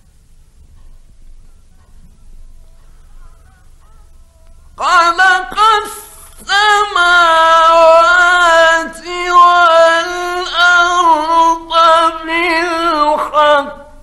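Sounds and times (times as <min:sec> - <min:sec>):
man chanting recitation: 0:04.8 - 0:14.0.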